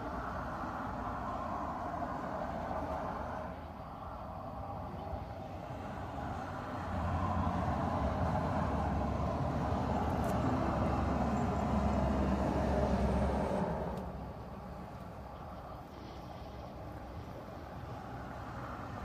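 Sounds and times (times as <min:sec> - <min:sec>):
vehicle passing: 0:00.0 - 0:19.0.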